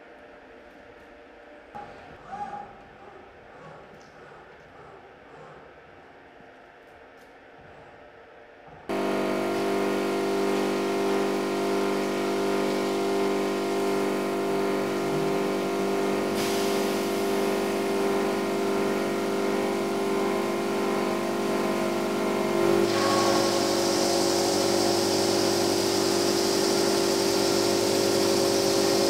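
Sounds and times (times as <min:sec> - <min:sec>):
stone saw hum and whine: 0:08.9 - 0:29.0
water spray hiss: 0:10.3 - 0:19.1, 0:22.7 - 0:29.0.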